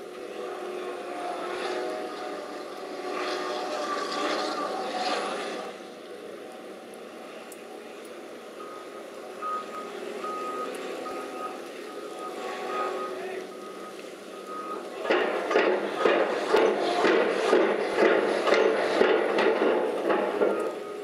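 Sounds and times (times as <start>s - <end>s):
diesel machinery humming: 0.0s - 21.0s
reversing alarm beeping: 8.5s - 18.8s, 19.7s - 21.0s
heavy machinery clanking: 14.4s - 21.0s.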